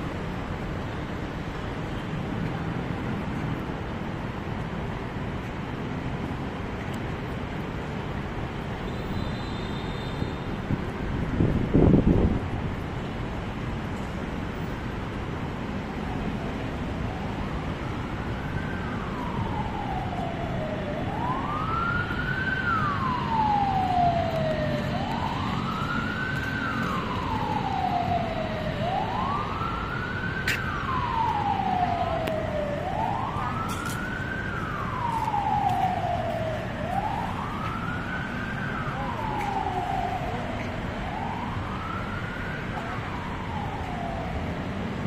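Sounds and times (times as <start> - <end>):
siren wailing: 15.8 - 45.0.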